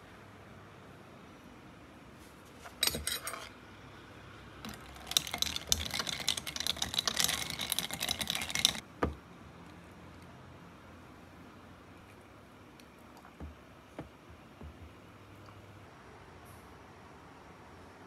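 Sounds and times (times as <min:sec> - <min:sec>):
metal spoon stirring: 0:02.7 - 0:03.6, 0:04.7 - 0:08.8
ice cubes clinking in a glass: 0:04.7 - 0:08.8.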